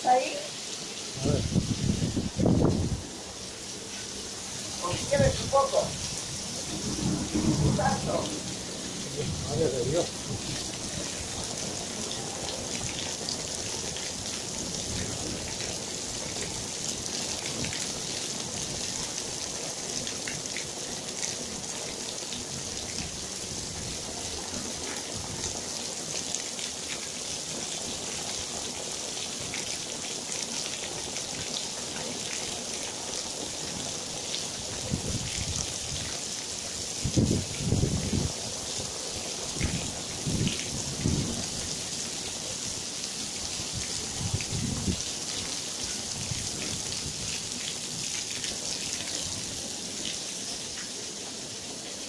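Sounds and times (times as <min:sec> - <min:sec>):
heavy rain on patio: 0:00.0 - 0:52.0
low rumble of thunder: 0:04.9 - 0:11.0.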